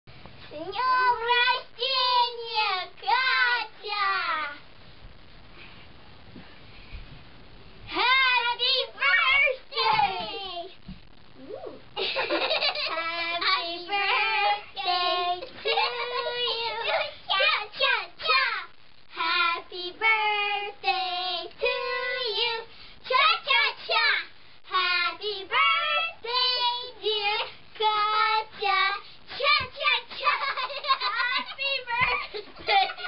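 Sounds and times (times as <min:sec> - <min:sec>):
girls singing together: 0:12.7 - 0:30.4.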